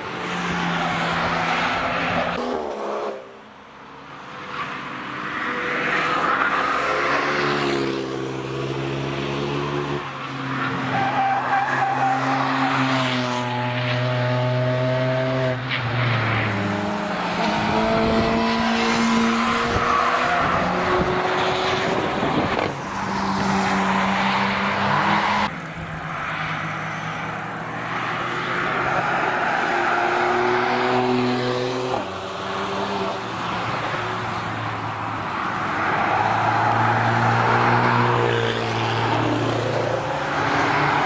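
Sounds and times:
race cars accelerating past: 12.2 - 41.0.

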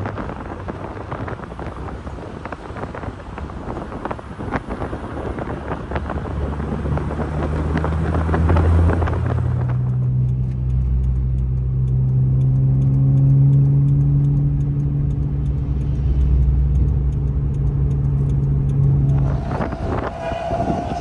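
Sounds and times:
car engine running: 0.0 - 21.0
steady higher tone: 18.2 - 21.0.

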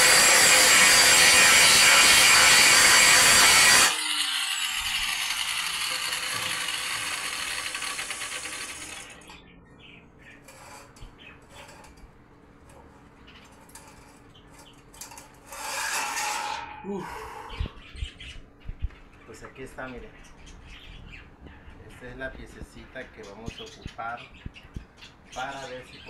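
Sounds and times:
angle grinder cutting metal: 0.0 - 9.4, 15.0 - 16.9.

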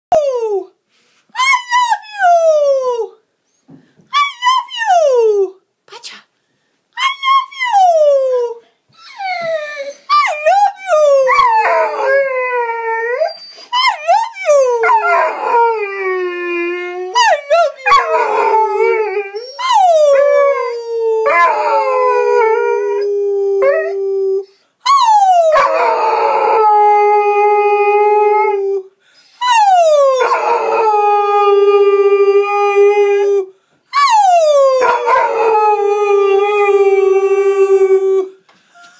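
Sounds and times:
puppy howling: 9.0 - 24.0, 24.9 - 28.6, 29.5 - 33.4, 34.0 - 38.2.

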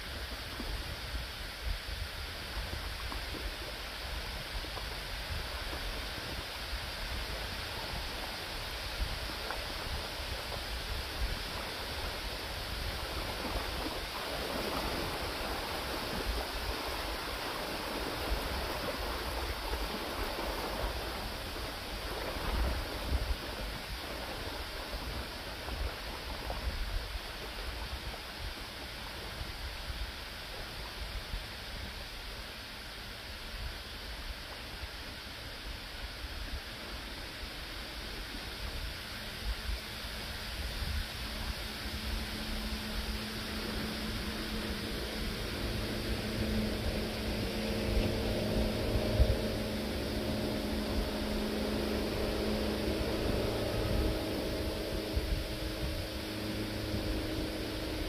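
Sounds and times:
waves washing onto shore: 0.0 - 58.0
low rumble: 40.5 - 58.0.

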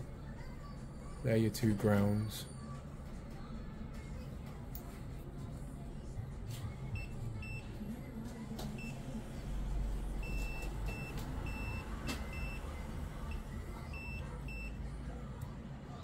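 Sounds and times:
continuity tester beeping: 7.0 - 7.7, 10.2 - 14.8.

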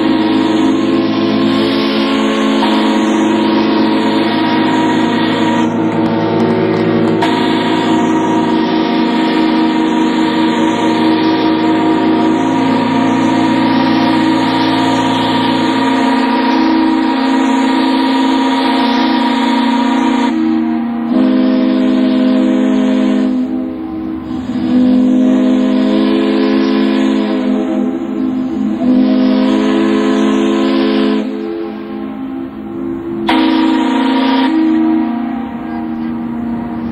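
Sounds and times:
ships' steam whistles blasting: 0.0 - 36.9.

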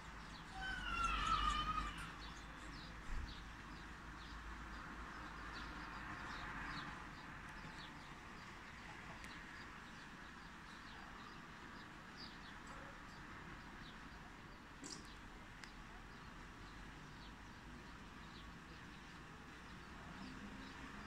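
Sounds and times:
long wavering bird call: 0.5 - 2.2.

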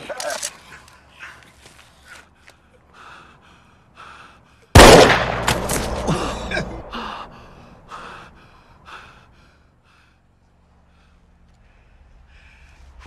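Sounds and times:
echoing gunshot: 4.8 - 7.3.

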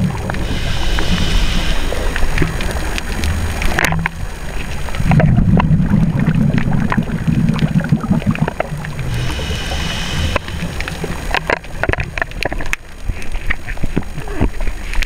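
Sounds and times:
steady low rumble: 0.0 - 12.4
exhaled bubbles rumbling: 0.0 - 14.8
diver breathing through regulator: 0.3 - 3.1, 9.0 - 11.9.

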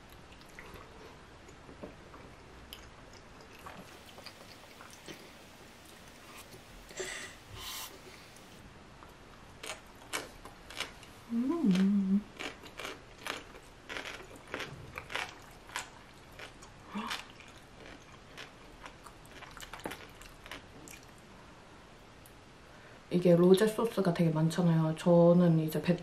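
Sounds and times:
chewing and mouth sounds: 0.0 - 6.3, 9.6 - 21.2
short hummed vocal sound: 11.3 - 12.3.

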